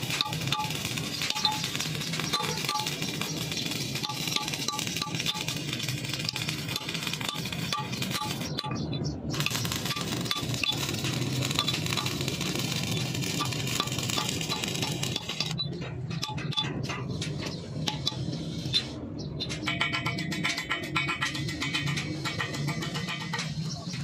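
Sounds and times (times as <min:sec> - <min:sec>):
welding arc crackling and hissing: 0:00.0 - 0:15.7, 0:21.1 - 0:24.0.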